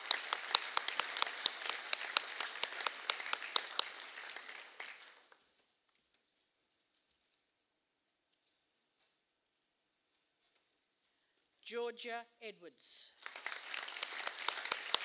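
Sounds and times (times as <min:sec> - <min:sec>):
single sharp claps: 0:00.0 - 0:05.0
audience applause: 0:00.0 - 0:05.4, 0:13.2 - 0:15.0.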